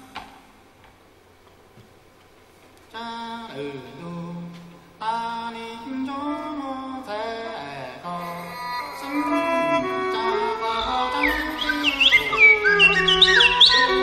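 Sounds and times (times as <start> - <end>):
low held tone: 8.0 - 14.0
sliding wavering melody: 8.2 - 14.0.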